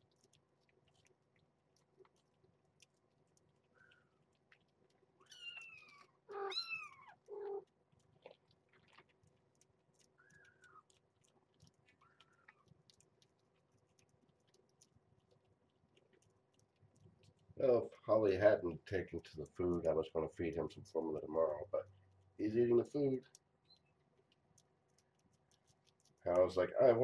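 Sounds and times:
cats eating wet food: 0.0 - 27.0
kittens mewing: 5.2 - 9.0.

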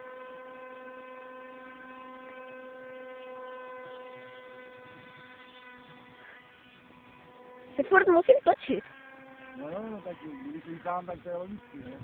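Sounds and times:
distant model glider motor buzzing: 0.0 - 12.0.

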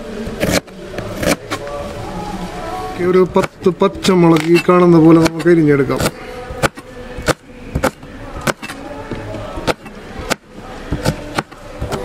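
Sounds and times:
knife chopping on plastic board: 6.0 - 8.8, 9.6 - 12.0.

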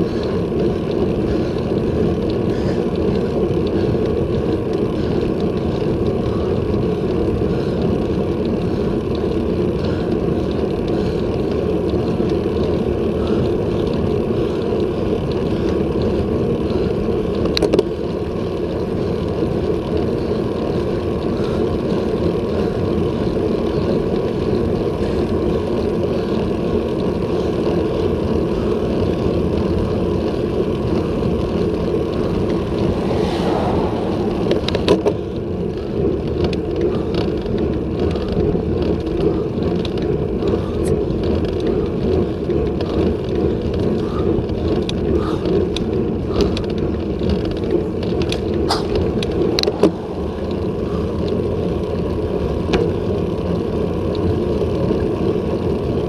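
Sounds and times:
road noise: 0.0 - 56.0
rushing wind: 30.3 - 40.9, 42.8 - 52.6
car passing close by: 32.1 - 36.3.

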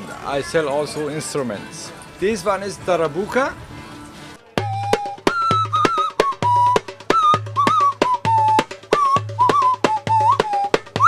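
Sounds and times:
hand drum rhythm: 4.6 - 11.0
nose whistle melody: 4.6 - 11.0.

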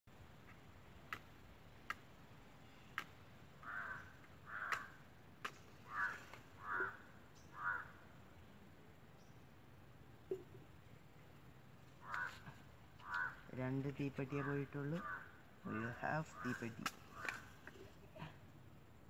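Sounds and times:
crows cawing: 3.6 - 5.0, 5.8 - 8.1, 12.0 - 13.5, 14.3 - 17.6.

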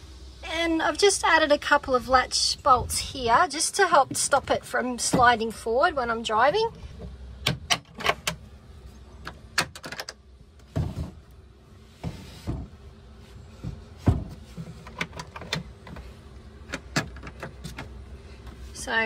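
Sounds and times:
metal latch clicks and knocks: 7.4 - 8.4, 9.2 - 10.2.

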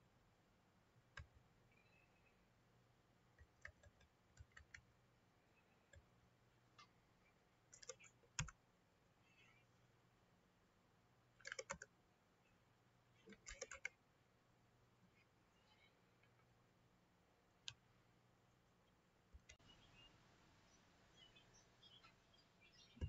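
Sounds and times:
keyboard typing: 3.4 - 4.9, 7.7 - 8.6, 11.4 - 11.9, 13.2 - 14.0.

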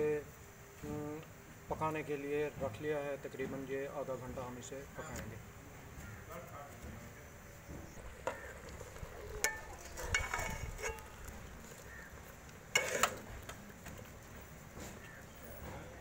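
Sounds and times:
ladle scraping and clinking pot: 8.0 - 13.6.

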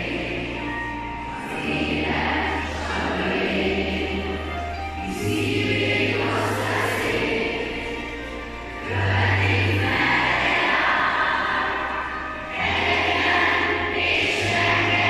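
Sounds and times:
children singing: 0.0 - 15.0
instrumental accompaniment with bass: 0.0 - 15.0.

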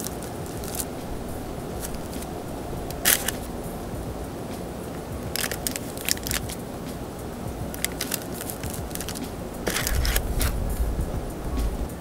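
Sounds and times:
crust crackling and crunching: 0.0 - 7.0, 7.6 - 10.9
low rumble: 0.4 - 5.4, 8.8 - 11.9.

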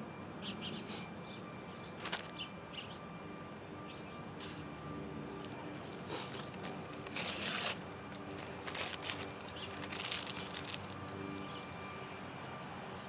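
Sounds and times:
paper crinkling and tearing: 2.0 - 2.4, 5.4 - 11.9.

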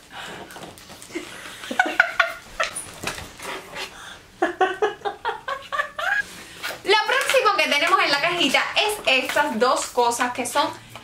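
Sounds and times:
woman and man laughing: 1.1 - 2.8, 4.4 - 6.2.

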